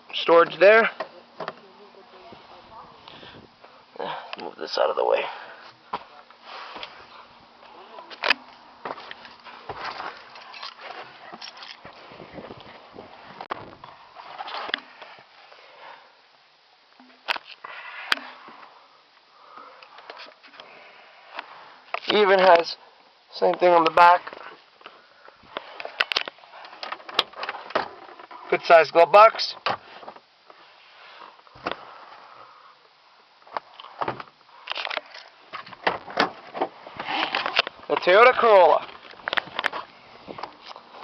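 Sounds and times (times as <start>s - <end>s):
rustling handling noise: 5.6s - 15.7s.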